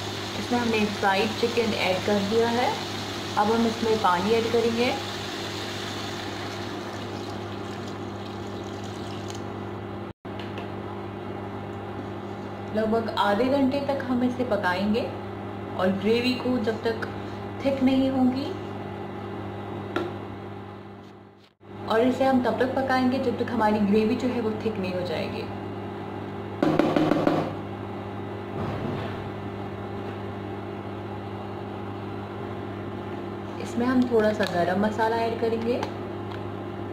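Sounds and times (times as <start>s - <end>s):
cooktop electrical hum: 0.0s - 36.9s
fan noise: 0.0s - 36.9s
water pouring into a pot: 0.1s - 9.4s.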